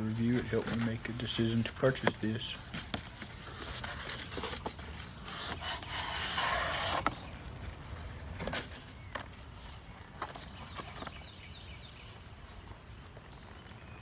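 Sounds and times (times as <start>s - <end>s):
cardboard rubbing and scraping: 0.0s - 7.5s.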